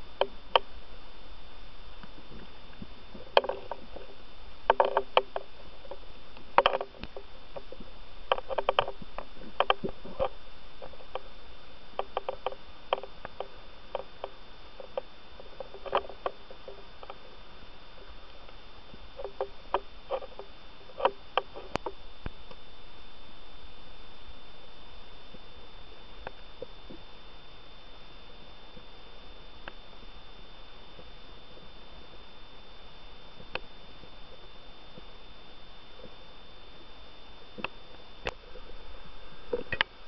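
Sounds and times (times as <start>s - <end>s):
faint high whine: 0.0s - 40.0s
steady hiss: 0.0s - 40.0s
clicks and knocks of dive gear: 2.4s - 11.3s, 12.0s - 17.2s.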